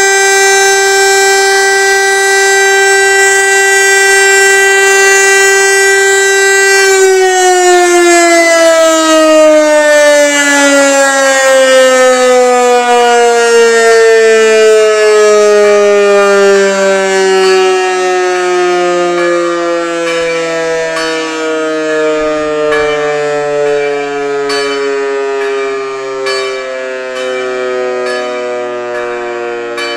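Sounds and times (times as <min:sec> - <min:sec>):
rotary siren winding down: 0:00.0 - 0:29.9
sharp bell strikes: 0:24.4 - 0:29.2.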